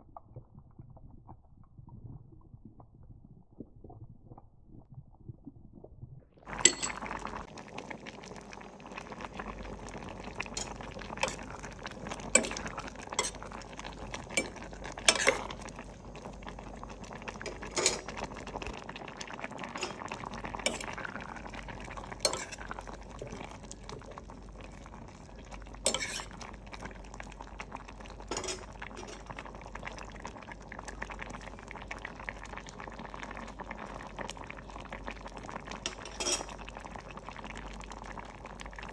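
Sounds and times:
curry bubbling in pot: 0.0s - 38.9s
metal ladle clinking on pot: 6.6s - 7.0s, 10.6s - 11.5s, 12.4s - 13.4s, 14.4s - 15.5s, 17.5s - 18.1s, 20.7s - 20.9s, 22.2s - 22.6s, 25.9s - 26.3s, 28.3s - 29.2s, 35.9s - 36.5s.

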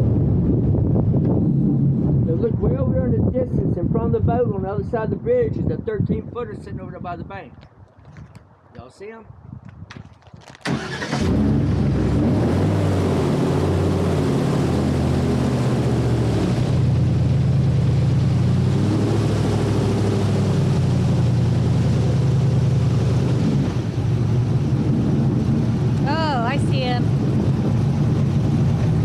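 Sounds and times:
airboat engine and propeller: 10.8s - 29.0s.

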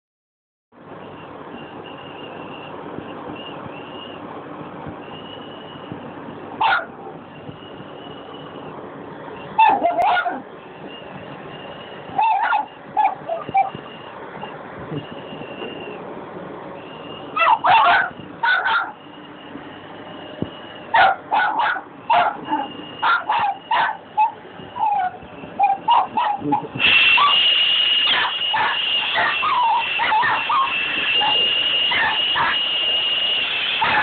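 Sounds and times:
small dog barking and yipping: 6.6s - 7.2s, 9.6s - 10.5s, 12.1s - 13.8s, 17.3s - 19.0s, 20.9s - 32.9s, 33.7s - 34.0s.

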